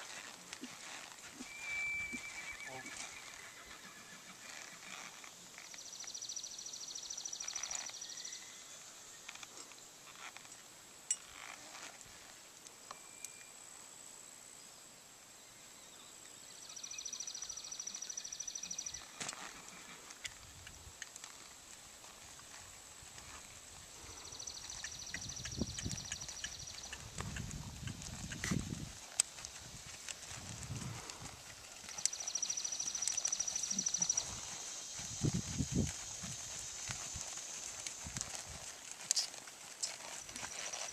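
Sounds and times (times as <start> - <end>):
hooves thudding on sand: 19.2 - 40.9
high rapid insect trill: 23.7 - 40.9.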